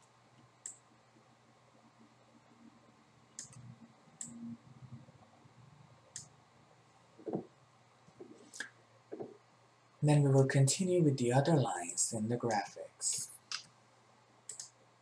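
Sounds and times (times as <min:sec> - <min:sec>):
computer mouse clicks: 0:00.0 - 0:00.8, 0:03.3 - 0:04.4, 0:06.1 - 0:06.3, 0:13.4 - 0:13.8, 0:14.5 - 0:14.8.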